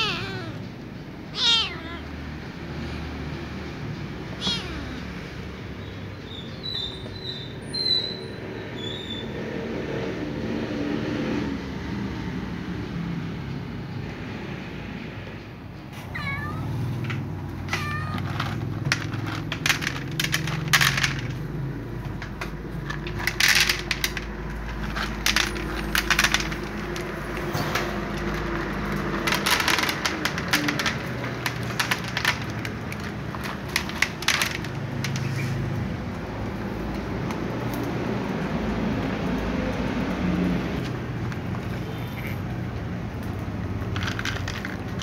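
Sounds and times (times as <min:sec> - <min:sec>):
cat meowing: 0:00.0 - 0:00.7, 0:01.3 - 0:02.4, 0:04.3 - 0:05.2, 0:16.1 - 0:16.9, 0:17.6 - 0:18.4, 0:41.7 - 0:42.5
cats crunching kibble: 0:16.0 - 0:35.4, 0:36.0 - 0:45.0
kibble clattering onto a tray: 0:17.0 - 0:21.4, 0:22.1 - 0:35.3, 0:43.8 - 0:45.0.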